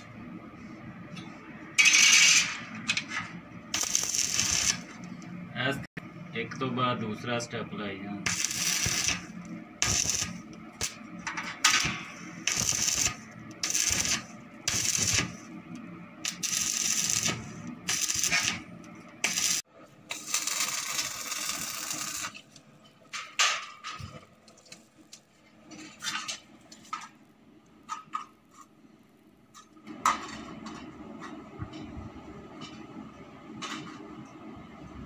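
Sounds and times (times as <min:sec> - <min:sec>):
arc welding crackling and hissing: 0:01.8 - 0:05.8, 0:08.1 - 0:22.4.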